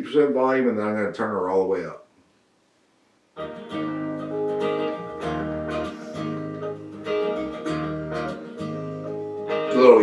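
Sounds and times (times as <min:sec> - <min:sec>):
soft rock with acoustic guitar: 0:03.4 - 0:10.0.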